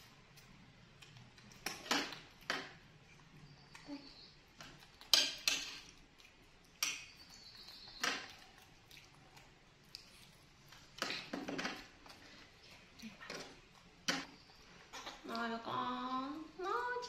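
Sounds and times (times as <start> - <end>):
dishes and utensils clinking: 5.0 - 5.9.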